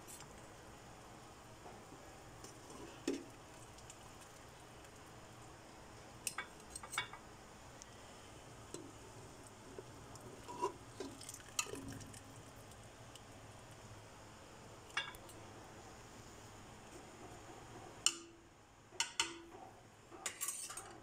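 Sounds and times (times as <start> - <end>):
faint steady hum: 0.0 - 21.0
metal kitchenware clinking: 20.2 - 20.9.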